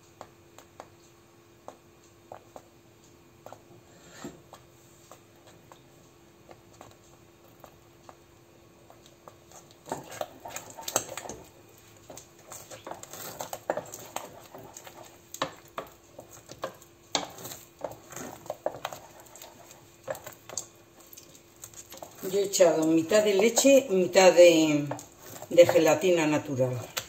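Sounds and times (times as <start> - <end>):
sticky squelches of dough: 0.2 - 27.0
wooden spoon knocking and scraping pot: 8.8 - 27.0.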